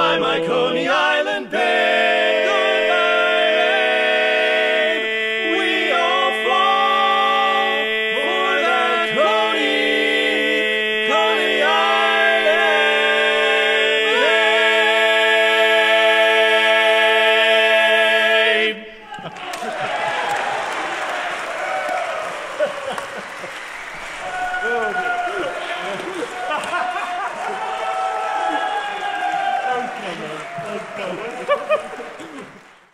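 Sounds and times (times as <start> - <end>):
male quartet singing a cappella: 0.0 - 19.0.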